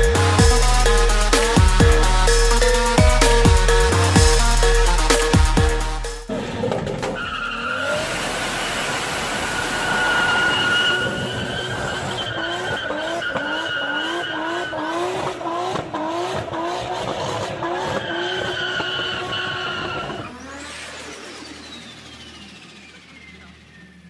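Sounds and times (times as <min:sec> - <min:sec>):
car engine revving: 0:00.0 - 0:24.0
long falling whine: 0:20.4 - 0:24.0.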